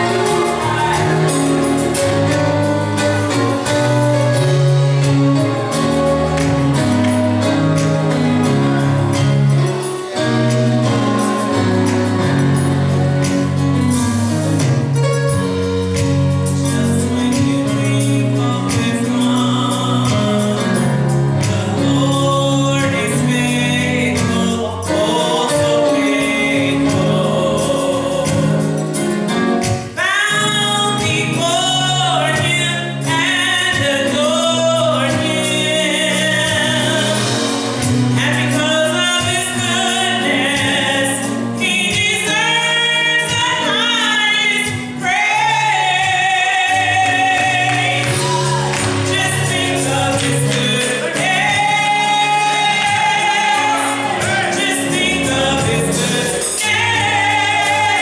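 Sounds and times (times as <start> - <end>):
choir singing: 0.0 - 13.3, 23.4 - 28.7, 45.3 - 58.0
electronic keyboard chords: 0.0 - 58.0.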